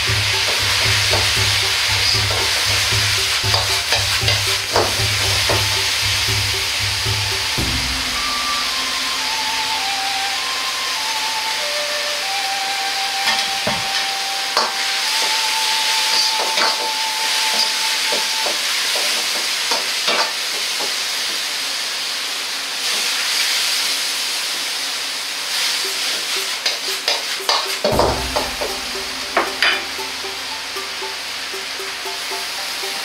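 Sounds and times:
vegetables sizzling in a wok: 0.0s - 33.0s.

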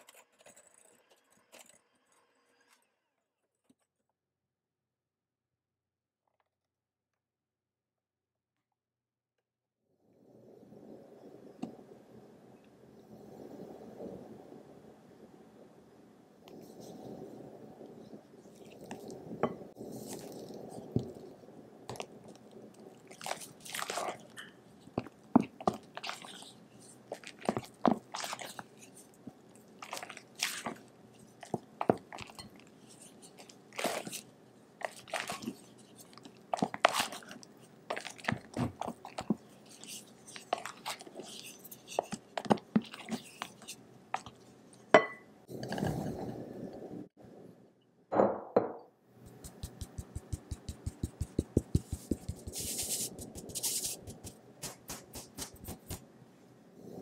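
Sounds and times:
flour sifting through sieve: 19.8s - 21.3s, 23.0s - 44.4s, 49.2s - 56.0s
spatula folding wet batter: 21.9s - 44.6s, 49.2s - 56.0s.

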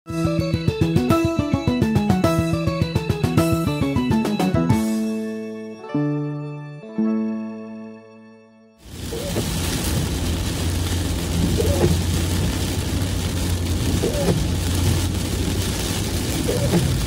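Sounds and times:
rain hissing on glass: 8.8s - 17.0s
car engine and tyre rumble: 8.9s - 17.0s.

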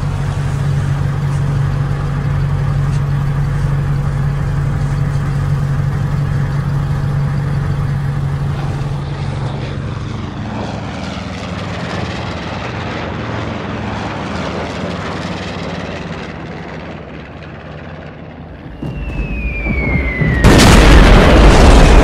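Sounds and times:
bomber aircraft drone: 0.0s - 22.0s
truck engine rumbling: 0.0s - 22.0s
falling bomb whistle: 18.6s - 22.0s
loud explosion: 18.6s - 22.0s.

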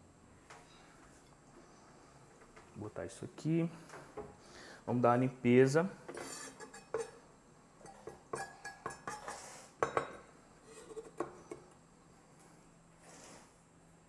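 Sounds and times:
knife scraping cutting board: 6.2s - 6.7s.

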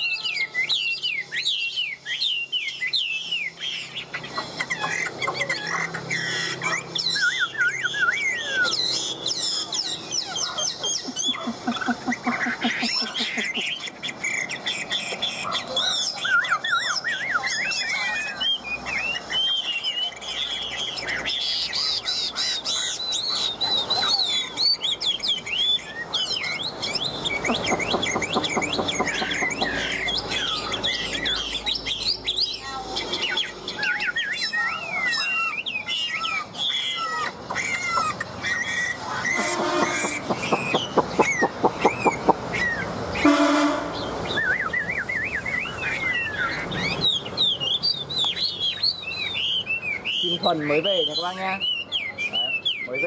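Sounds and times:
bird singing whistled phrases: 0.0s - 53.0s
low buzzing bird call: 36.6s - 46.6s.

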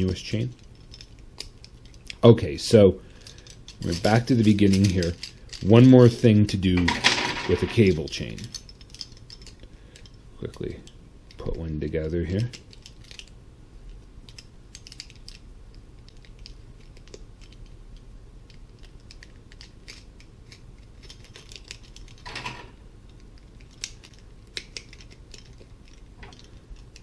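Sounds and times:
plastic rings clinking: 3.2s - 10.6s.

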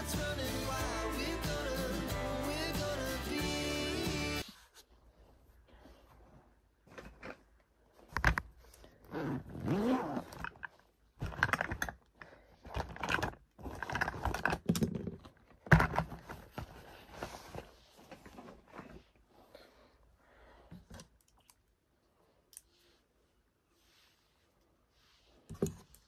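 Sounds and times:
zipper: 8.9s - 10.7s.

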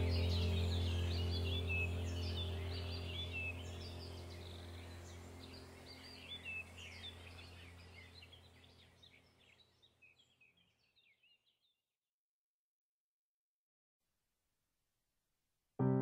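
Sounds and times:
steady low hum: 0.0s - 8.9s
small birds chirping: 0.0s - 11.8s.

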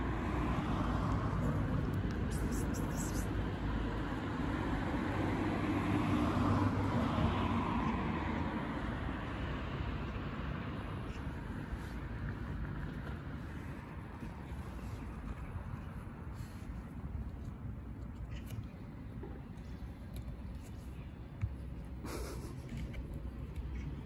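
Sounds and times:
car passing by: 0.0s - 13.9s.

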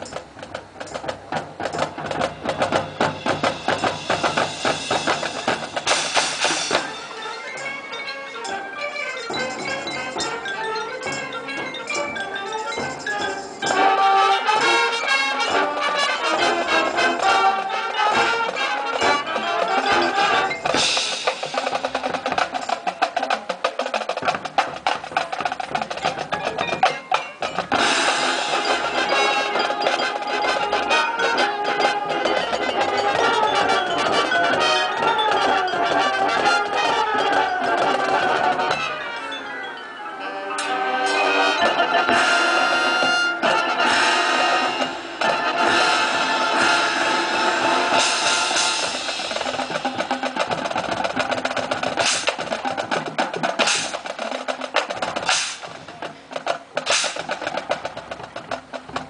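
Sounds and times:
rapid drum strokes: 0.0s - 7.8s, 9.2s - 39.0s, 41.2s - 59.0s
marching band playing: 0.0s - 59.0s.

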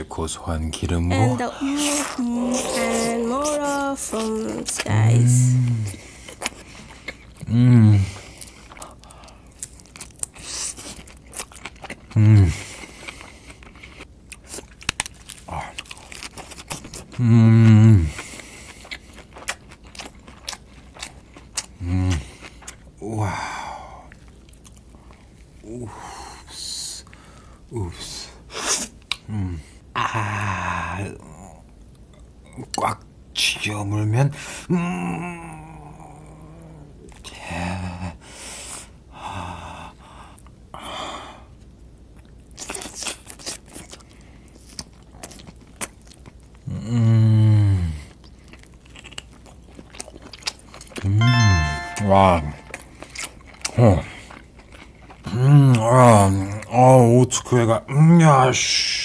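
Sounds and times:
man humming with enjoyment: 1.2s - 4.4s, 7.5s - 8.2s, 51.0s - 52.8s
wet chewing clicks: 18.1s - 22.9s, 42.2s - 46.6s, 48.1s - 51.1s, 52.7s - 55.9s.

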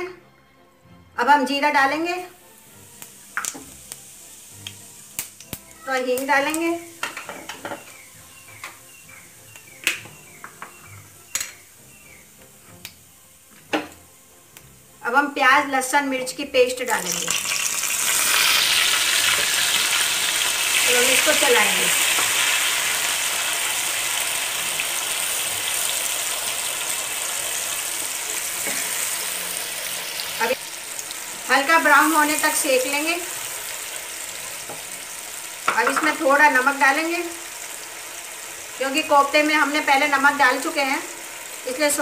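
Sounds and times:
seeds sizzling in oil: 1.6s - 42.0s.

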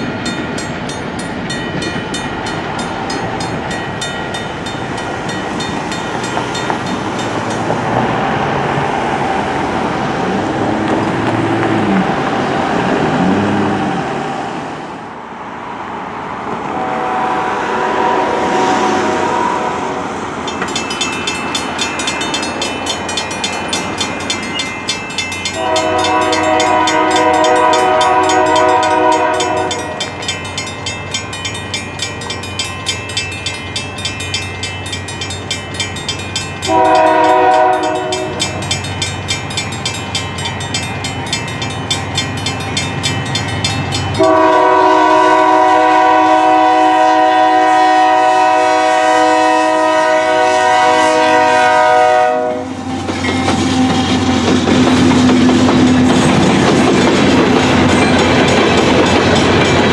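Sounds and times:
crossing bells ringing: 0.0s - 8.5s, 18.8s - 47.4s, 48.1s - 59.9s
locomotive air horn blasts: 16.8s - 20.1s, 25.6s - 30.0s, 36.7s - 38.6s, 44.2s - 53.1s.

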